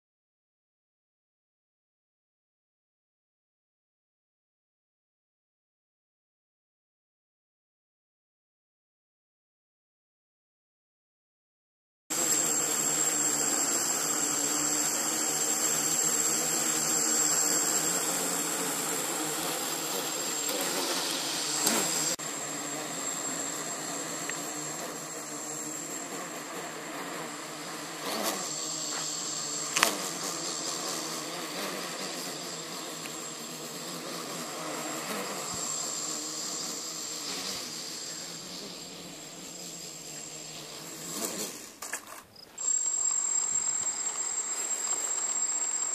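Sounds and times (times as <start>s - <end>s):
quadcopter motors buzzing: 12.1s - 45.9s
high whine: 12.2s - 39.4s, 42.6s - 45.9s.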